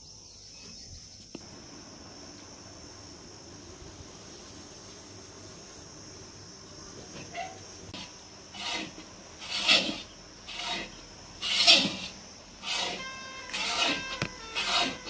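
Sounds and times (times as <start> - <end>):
iron ladle scraping a pan: 8.5 - 15.0.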